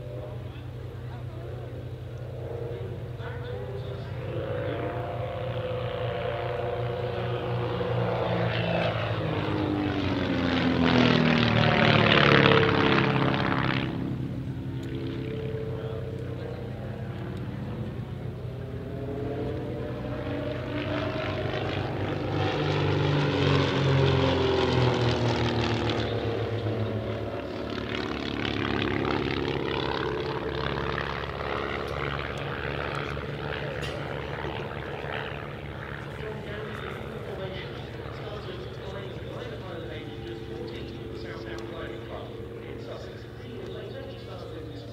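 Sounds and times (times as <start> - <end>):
light aircraft engines droning: 0.0 - 44.9.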